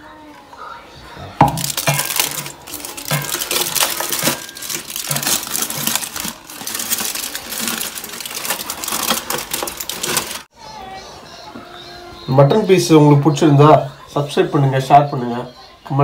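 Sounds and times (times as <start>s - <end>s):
aluminium foil crinkling: 1.4s - 10.5s.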